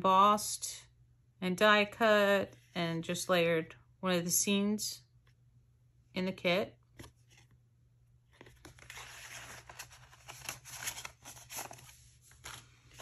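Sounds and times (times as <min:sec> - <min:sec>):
paper rustling and crinkling: 0:08.4 - 0:13.0.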